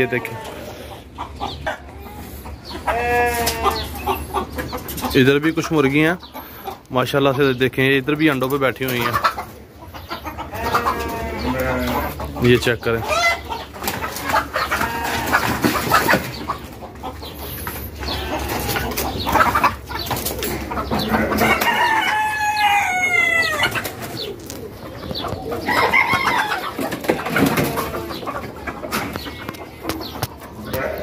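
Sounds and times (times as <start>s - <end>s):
chickens clucking: 0.0s - 31.0s
rooster crowing: 21.3s - 23.7s.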